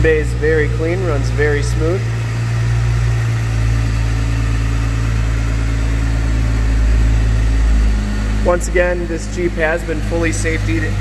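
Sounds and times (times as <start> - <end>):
car engine idling: 0.0 - 11.0.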